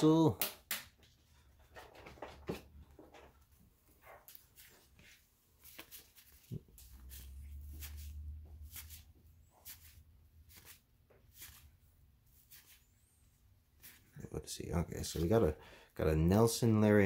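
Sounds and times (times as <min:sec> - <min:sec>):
paper cards sliding: 0:05.6 - 0:11.8, 0:12.4 - 0:12.9.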